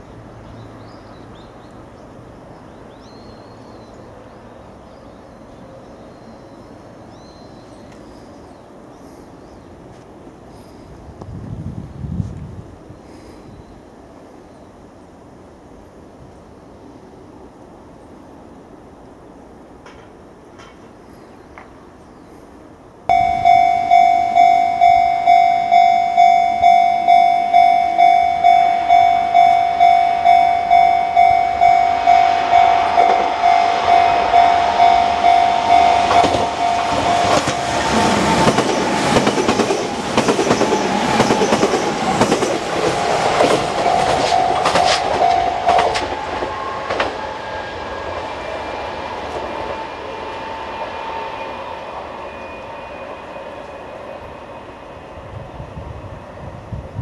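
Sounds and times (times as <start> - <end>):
level crossing bell ringing: 23.1 - 38.1, 43.7 - 46.2
train wheels clacking over joints: 25.7 - 48.4.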